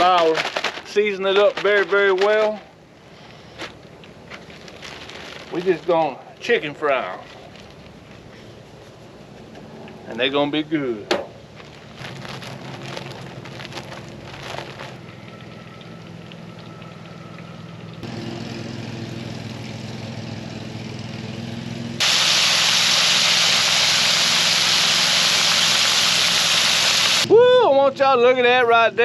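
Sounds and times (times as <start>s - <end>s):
plastic bag rustling: 0.0s - 2.7s, 3.4s - 8.9s, 11.5s - 15.5s
deep-frying sizzling in oil: 13.1s - 18.1s, 22.0s - 27.3s.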